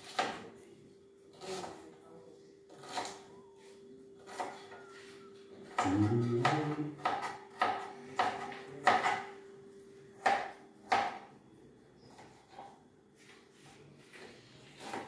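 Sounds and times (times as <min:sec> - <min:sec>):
knife chopping on cutting board: 0:00.0 - 0:00.4, 0:02.8 - 0:03.2, 0:04.2 - 0:04.6, 0:05.6 - 0:09.3, 0:10.2 - 0:11.3, 0:14.8 - 0:15.0.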